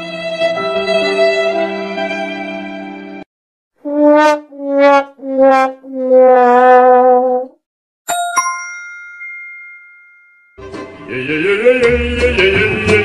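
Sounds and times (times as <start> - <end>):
sad trombone effect: 3.8 - 7.4
bright two-note ding chime: 8.1 - 10.6.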